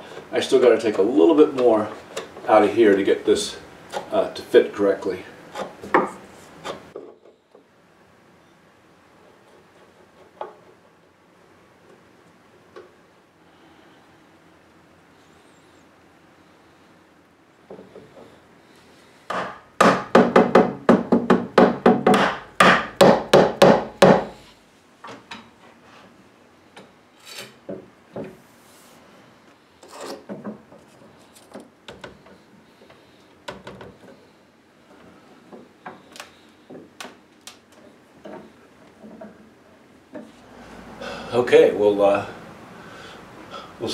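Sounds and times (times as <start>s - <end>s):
mallet tapping wood: 19.3s - 24.3s.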